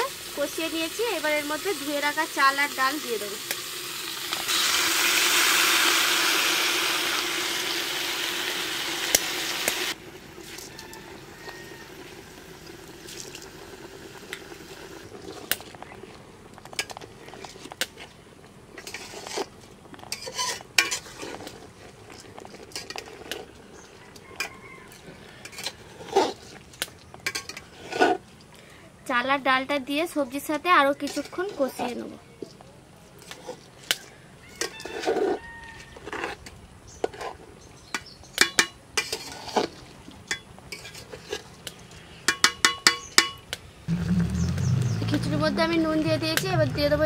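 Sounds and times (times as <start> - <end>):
rice sizzling in hot oil: 0.0 - 28.3, 37.0 - 43.4
metal spoon scraping a pot: 18.8 - 26.6, 27.2 - 28.2, 31.0 - 32.1, 34.6 - 37.4, 38.4 - 41.5.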